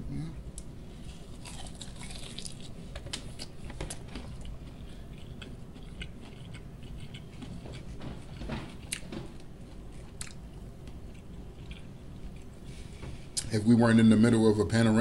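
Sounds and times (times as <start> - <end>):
person chewing chicken wing: 1.2 - 9.1, 9.8 - 12.6.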